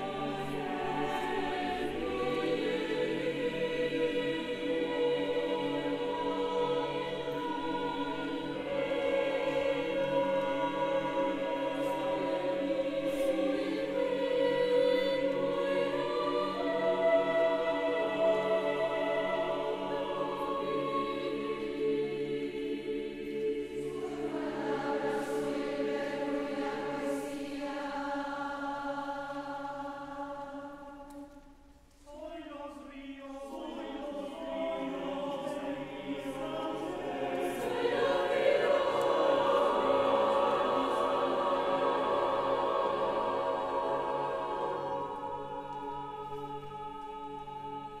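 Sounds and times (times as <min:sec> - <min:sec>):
a cappella choir singing: 0:00.0 - 0:48.0.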